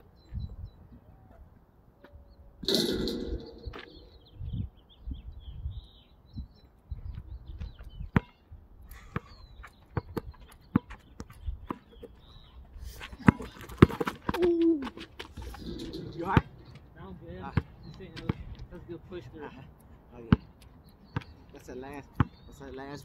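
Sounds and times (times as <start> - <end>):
birds chirping faintly: 0.0 - 23.0
basketball bouncing on asphalt: 8.1 - 8.4, 9.2 - 11.9, 13.2 - 14.6, 17.5 - 18.6, 21.1 - 21.3, 22.1 - 22.4.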